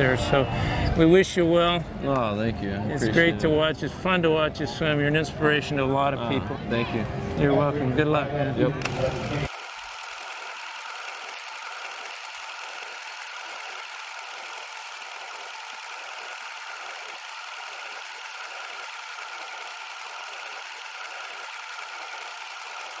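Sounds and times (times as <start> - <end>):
film projector whirring: 8.8 - 23.0.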